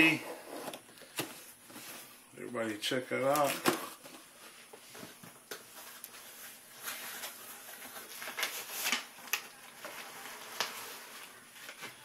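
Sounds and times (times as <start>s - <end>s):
packaging rustling and scraping: 3.2s - 12.0s.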